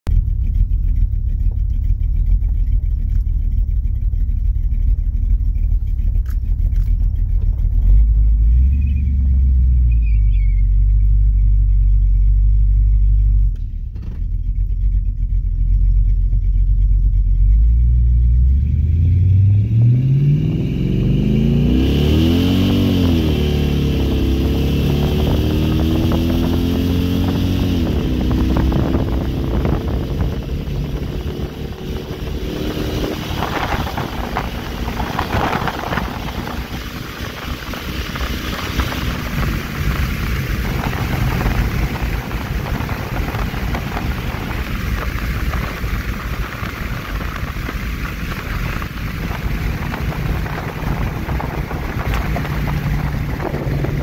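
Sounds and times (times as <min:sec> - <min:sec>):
engine rumbling and accelerating: 0:00.0 - 0:54.0
wind noise: 0:19.4 - 0:54.0.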